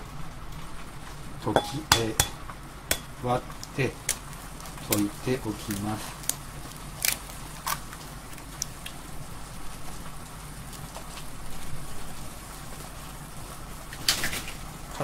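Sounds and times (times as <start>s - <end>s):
low steady hum: 0.0s - 13.9s.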